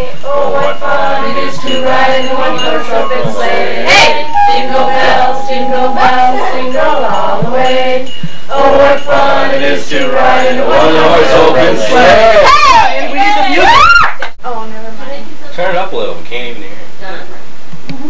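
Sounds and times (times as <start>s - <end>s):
group singing carol with accompaniment: 0.0s - 13.4s.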